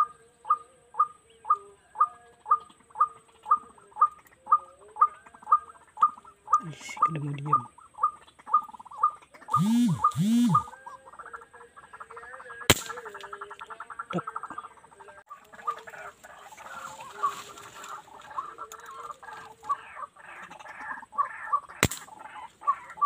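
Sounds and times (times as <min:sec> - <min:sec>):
waterhen calling: 0:00.0 - 0:23.0
sharp clicks: 0:09.6 - 0:10.7, 0:12.7 - 0:13.3, 0:21.8 - 0:22.1.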